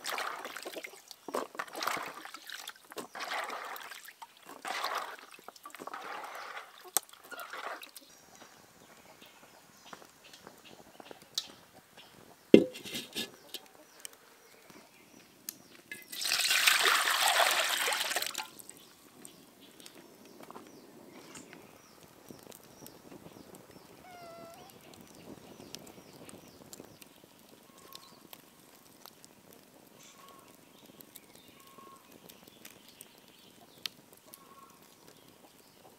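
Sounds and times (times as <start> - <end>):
liquid pouring: 3.2 - 6.6, 15.9 - 18.7
sharp knock: 12.6 - 12.9.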